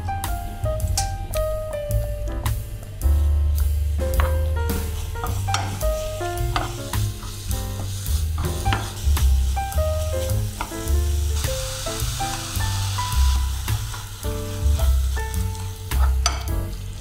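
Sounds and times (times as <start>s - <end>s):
background music with bass: 0.0s - 17.0s
mushrooms sizzling in frying pan: 0.0s - 17.0s
wooden spatula stirring: 4.2s - 17.0s.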